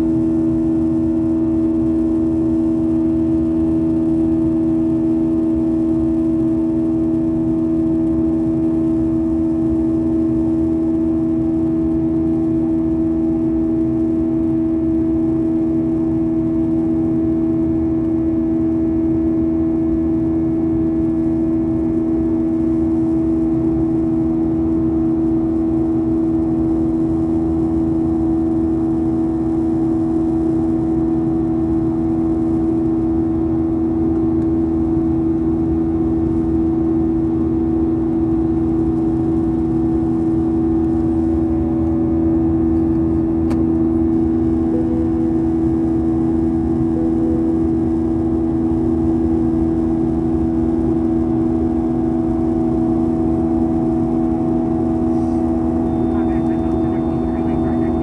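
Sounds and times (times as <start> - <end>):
jet engines droning: 20.9 - 58.0.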